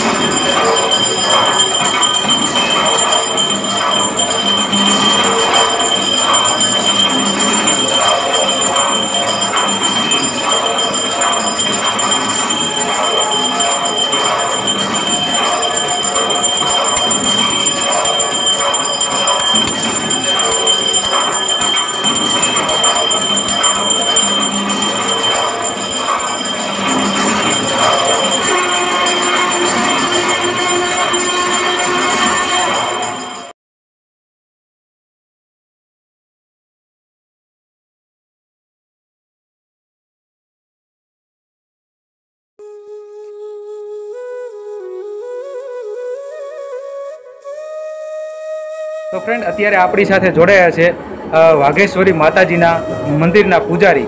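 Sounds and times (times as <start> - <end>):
metallic ringing: 0.0 - 33.5
bells and jingling percussion: 0.0 - 33.6, 49.3 - 54.0.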